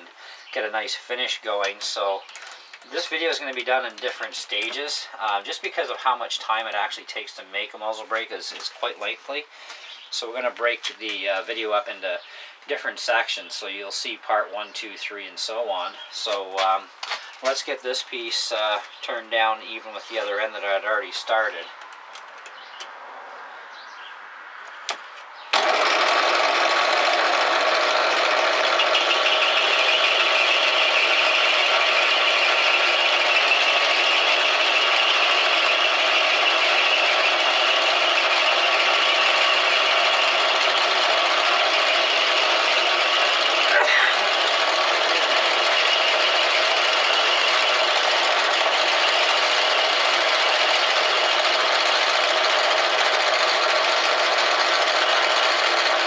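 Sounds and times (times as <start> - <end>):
metal lathe running: 25.5 - 56.0.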